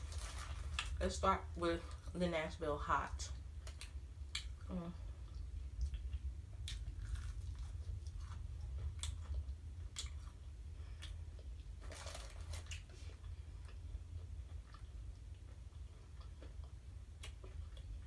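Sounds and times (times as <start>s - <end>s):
crunching fried chicken: 0.0s - 1.2s, 5.4s - 18.0s
steady low hum: 0.0s - 18.0s.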